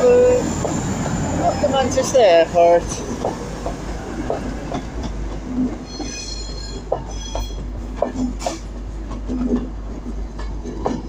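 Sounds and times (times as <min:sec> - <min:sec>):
diesel train moving out: 0:00.0 - 0:11.0
train wheels clicking over rail joints: 0:00.0 - 0:11.0
high-pitched wheel squeal: 0:05.8 - 0:07.6.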